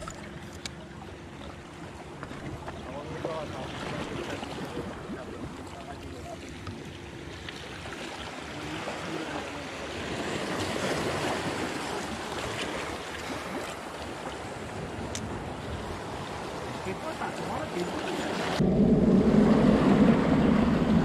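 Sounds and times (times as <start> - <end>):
sea waves breaking over rocks: 0.0 - 21.0.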